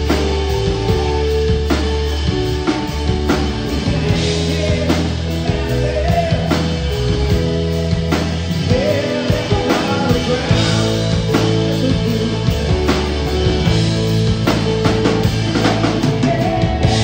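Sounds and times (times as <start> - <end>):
drum kit beat: 0.0 - 17.0
electric guitar: 0.0 - 17.0
man singing lead vocal: 3.4 - 13.8, 15.5 - 17.0.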